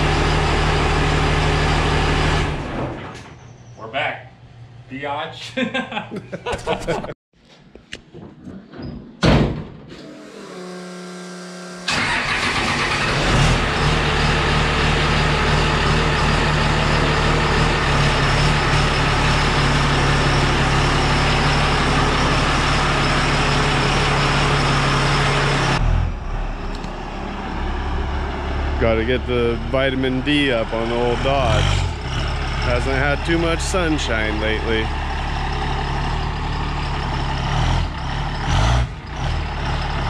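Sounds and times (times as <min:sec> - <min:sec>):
diesel engine cranking and idling: 0:00.0 - 0:03.6, 0:10.0 - 0:40.0
loud thump: 0:09.2 - 0:09.9.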